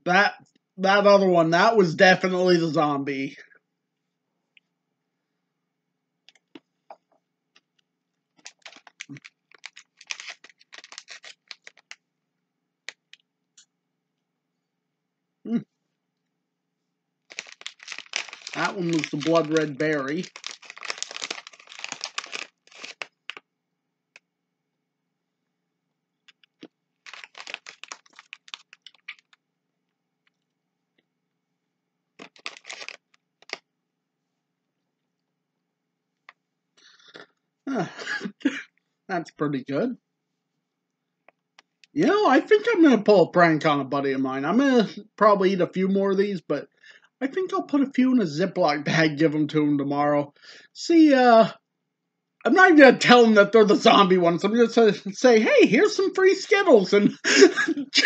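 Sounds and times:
plastic candy bag crinkling: 8.4 - 12.0, 12.9 - 13.2, 17.3 - 23.4, 26.3 - 29.4, 32.2 - 33.6.

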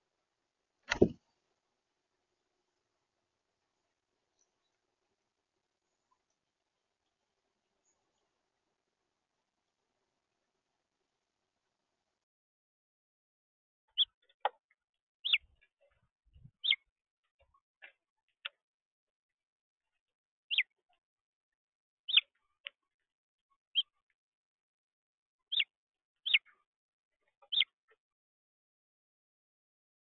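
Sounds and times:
finch chirp calls: 15.2 - 15.6, 16.6 - 16.8, 20.5 - 20.7, 22.1 - 22.4, 25.5 - 26.6, 27.3 - 27.8.

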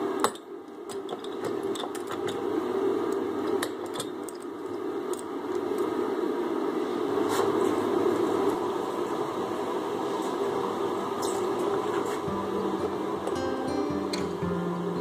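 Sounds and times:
low hum of shop noise: 0.0 - 15.0.

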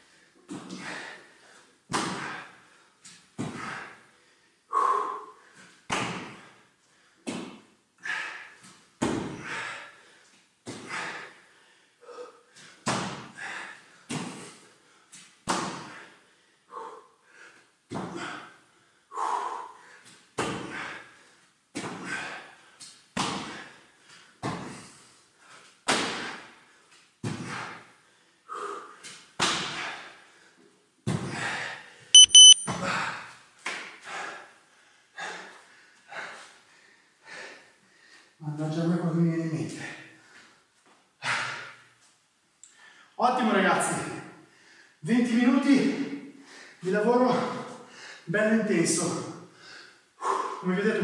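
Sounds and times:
interval timer beeping: 32.2 - 32.7.

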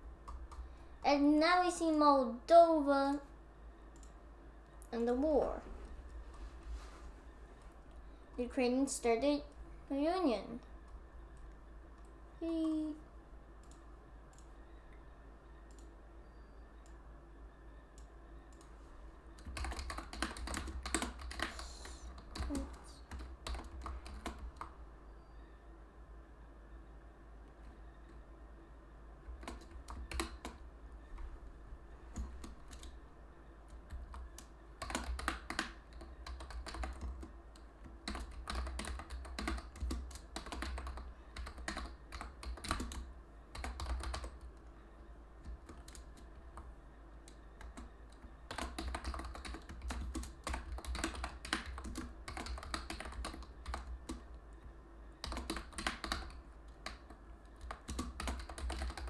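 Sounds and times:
keyboard typing: 0.2 - 2.1, 3.9 - 4.2, 13.6 - 15.9, 19.3 - 24.8, 29.2 - 31.3, 32.0 - 33.0, 33.6 - 44.7, 45.4 - 59.0
low hum: 3.1 - 19.8.

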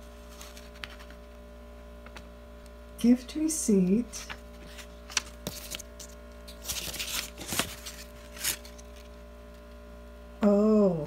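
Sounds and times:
low electrical hum: 0.0 - 11.0
paper and packaging rustling: 0.2 - 1.2, 4.1 - 9.2.

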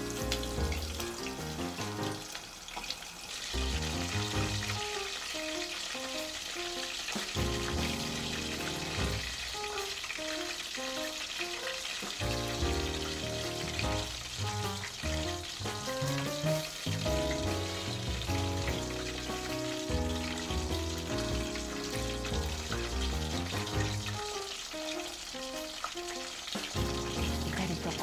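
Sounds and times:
background music: 0.0 - 2.2, 6.2 - 10.0, 12.2 - 28.0
chicken deep-frying in oil: 0.0 - 28.0.

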